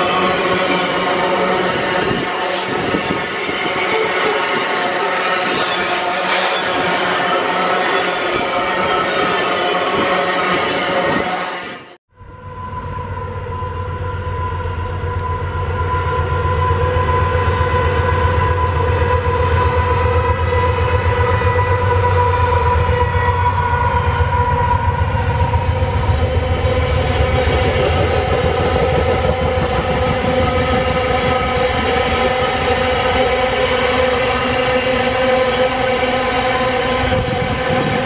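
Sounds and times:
deep locomotive engine rumble: 12.1s - 38.0s
steady whine: 23.1s - 38.0s.

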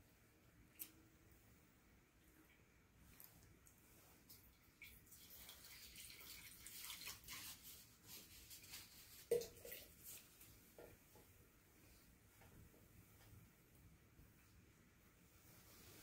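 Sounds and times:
water trickling into a bowl: 4.4s - 7.8s, 8.6s - 10.2s.

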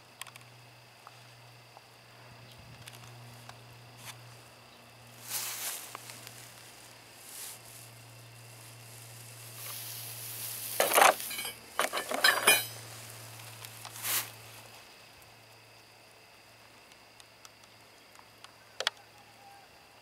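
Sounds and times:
steady low hum: 0.0s - 18.9s
small ticks: 0.1s - 4.4s, 13.2s - 15.3s, 16.7s - 19.3s
rustling and crackling: 5.1s - 14.9s.

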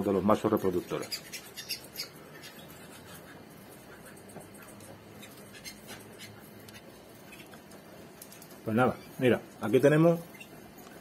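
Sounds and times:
canaries scratching in wire cages: 0.1s - 11.0s.

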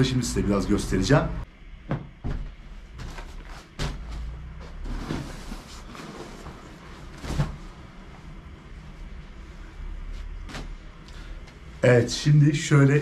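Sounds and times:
steady low hum: 0.0s - 13.0s
knocks and bumps of objects: 1.8s - 5.3s.

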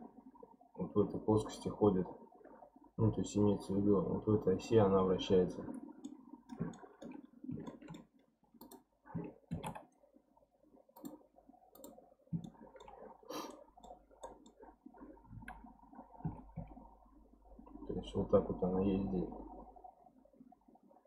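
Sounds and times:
keyboard key presses: 6.0s - 9.9s
computer mouse clicks: 6.0s - 10.0s, 11.0s - 14.7s.

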